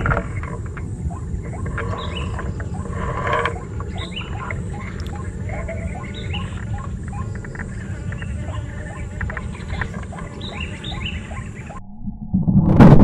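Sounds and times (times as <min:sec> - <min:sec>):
waterhens calling: 0:00.0 - 0:11.8
steady low rumble: 0:09.5 - 0:13.0.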